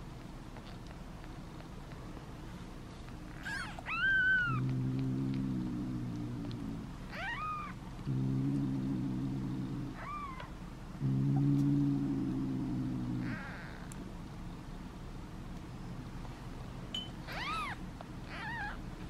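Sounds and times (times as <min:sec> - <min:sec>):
low steady hum: 0:00.0 - 0:19.0
kitten mewing: 0:03.4 - 0:10.5, 0:17.3 - 0:18.8.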